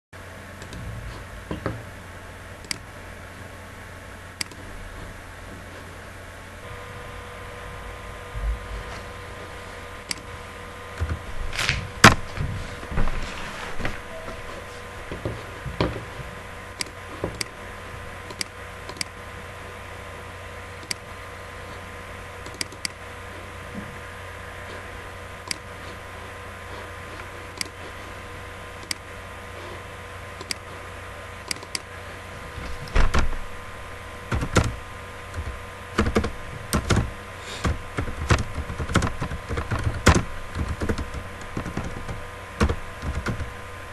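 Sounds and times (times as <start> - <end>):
faint steady hum: 0.2 - 43.9
keyboard keys clicking: 30.4 - 30.6, 34.3 - 43.5.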